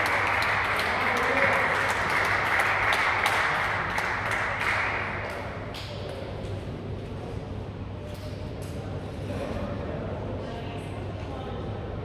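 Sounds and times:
spectators applauding: 0.0s - 5.9s.

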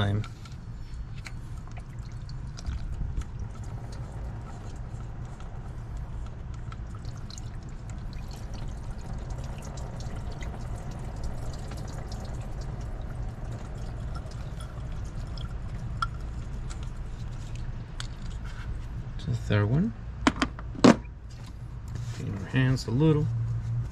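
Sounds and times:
coolant trickling into container: 0.0s - 19.0s.

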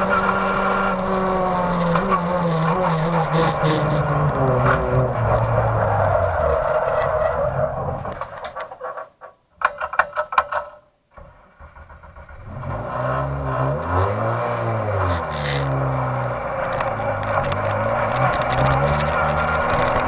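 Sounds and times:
race car engine revving: 0.0s - 8.1s, 12.1s - 20.0s
clattering and scraping: 0.0s - 10.8s, 15.0s - 20.0s.

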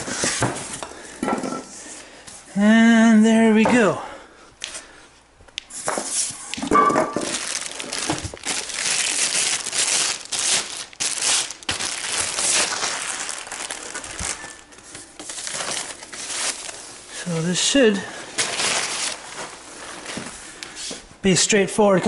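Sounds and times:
packing material rustling and crinkling: 7.1s - 21.1s.

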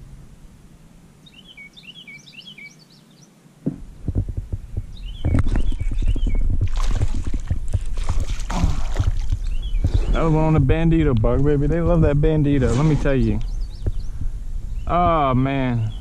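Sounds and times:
small bird chirping: 1.2s - 3.4s, 4.6s - 6.6s, 9.4s - 10.4s, 13.4s - 16.0s
rapid low knocks: 3.6s - 16.0s
fish splashing in water: 6.6s - 9.6s.

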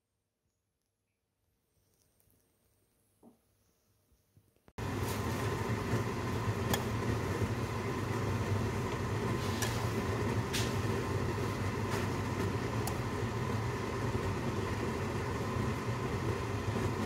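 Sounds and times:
water boiling in a pot: 4.8s - 17.0s.

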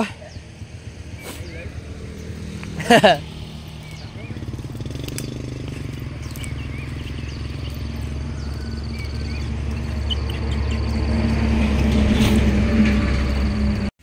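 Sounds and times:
vehicle engine hum: 0.0s - 14.0s
insects trilling: 3.2s - 11.5s.

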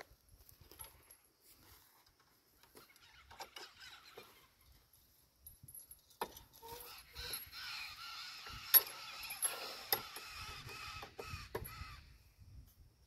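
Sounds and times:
chain links rattling: 3.1s - 7.6s, 8.6s - 10.0s.

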